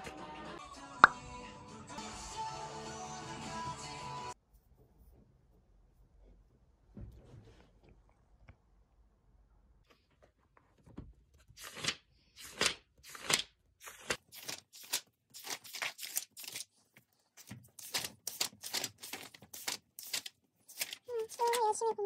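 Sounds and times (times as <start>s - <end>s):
notebook pages turning: 11.6s - 21.7s.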